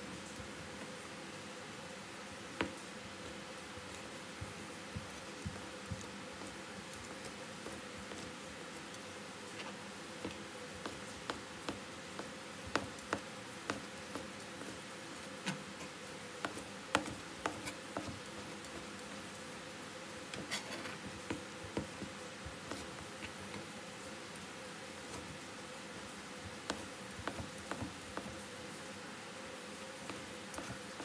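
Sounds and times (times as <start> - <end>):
knife chopping on cutting board: 16.4 - 18.2, 26.7 - 28.3.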